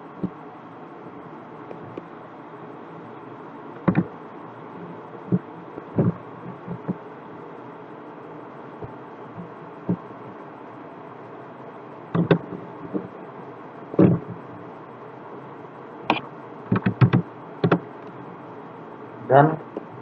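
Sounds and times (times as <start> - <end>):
keyboard and mouse clicks: 3.8 - 4.1, 12.1 - 13.0, 16.1 - 17.8.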